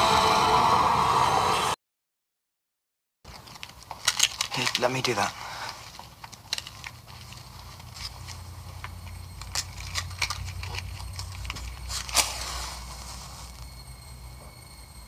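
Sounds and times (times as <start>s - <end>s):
low steady rumble: 5.7s - 15.0s.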